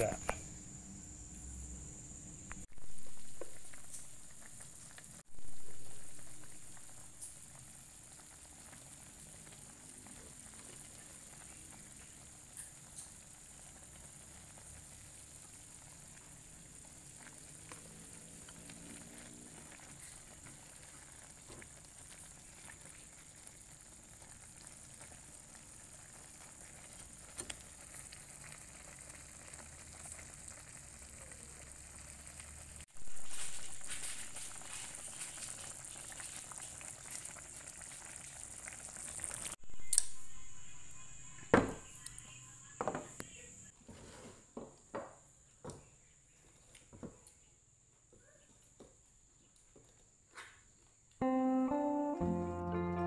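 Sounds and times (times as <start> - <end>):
soup boiling and bubbling: 0.0 - 40.1.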